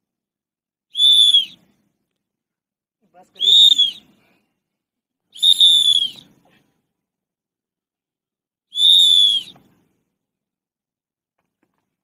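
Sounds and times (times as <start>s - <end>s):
whistle blasts: 0.9s - 1.6s, 3.4s - 4.1s, 5.4s - 6.4s, 8.7s - 9.6s.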